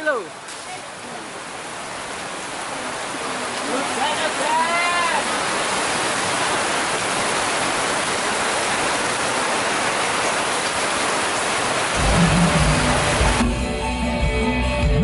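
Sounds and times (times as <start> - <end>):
rain hissing on tarpaulins: 0.0 - 13.8
low bass sound: 12.0 - 15.0.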